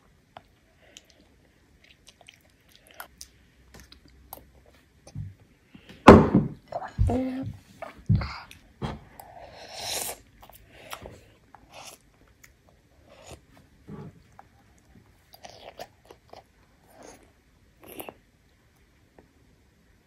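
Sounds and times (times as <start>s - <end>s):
child chewing and mouth clicks: 0.2s - 5.3s, 7.8s - 13.6s, 14.2s - 19.4s.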